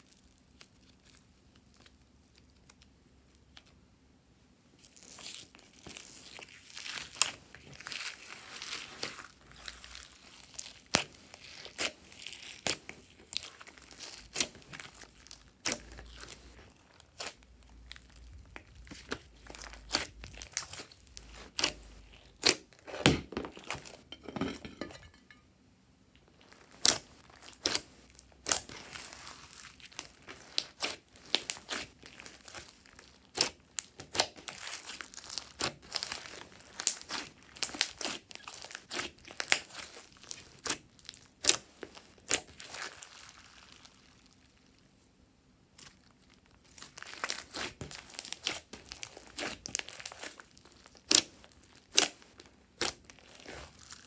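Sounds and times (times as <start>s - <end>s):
sticky slime pops and crackles: 47.0s - 52.2s.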